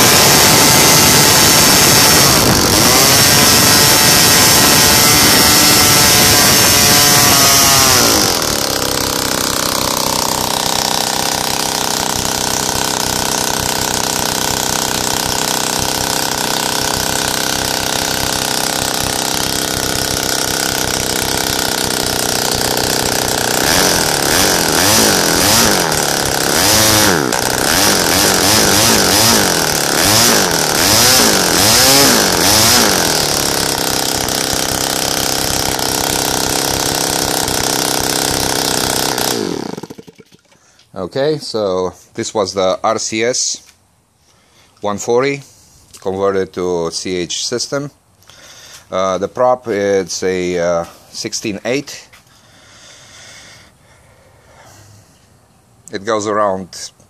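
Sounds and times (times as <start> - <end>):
model aircraft engine revving: 0.0 - 40.5.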